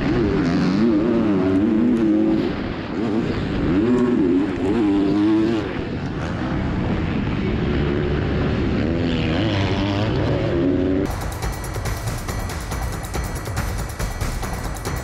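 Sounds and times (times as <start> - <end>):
motocross engine revving: 0.0 - 11.2.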